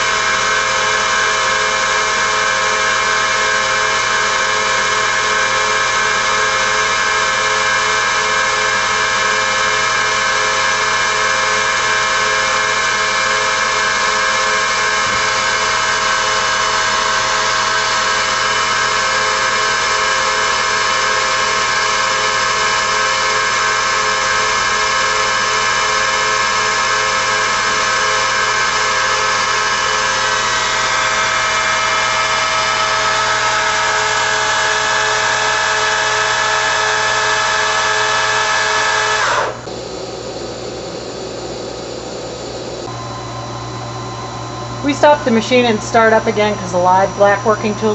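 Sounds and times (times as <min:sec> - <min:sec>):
lathe machine whine: 0:00.0 - 0:47.9
fast pulsing hum: 0:41.7 - 0:47.9.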